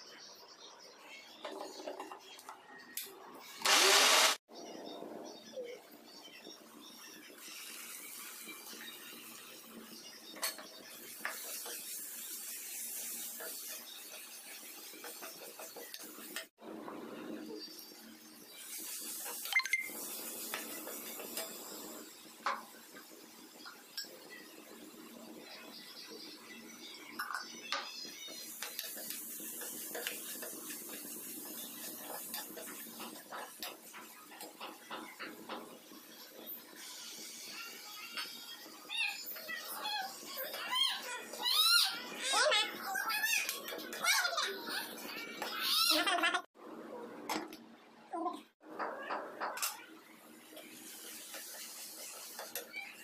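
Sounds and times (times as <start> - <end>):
onions sizzling in frying pan: 7.3 - 16.5, 17.4 - 42.6, 50.2 - 53.0.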